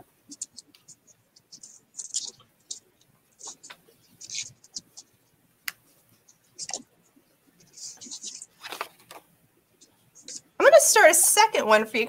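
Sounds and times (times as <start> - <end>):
paper rustling and crinkling: 7.6 - 9.2.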